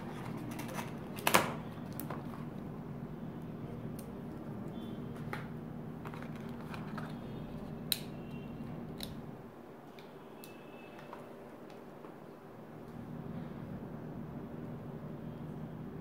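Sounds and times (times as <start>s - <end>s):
clicks and rustles of handling: 0.0s - 2.7s, 5.1s - 8.0s.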